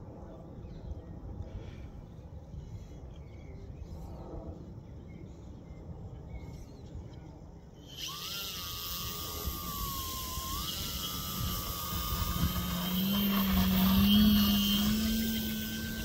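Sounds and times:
model aircraft motor whine: 7.8s - 16.0s.

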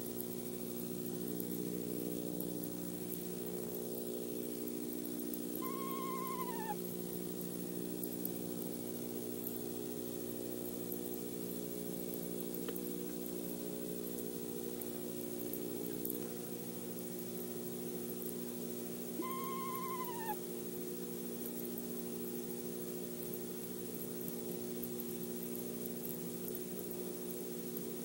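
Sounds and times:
steady low hum: 0.0s - 28.0s
owl quavering call: 5.6s - 6.8s, 19.2s - 20.4s.

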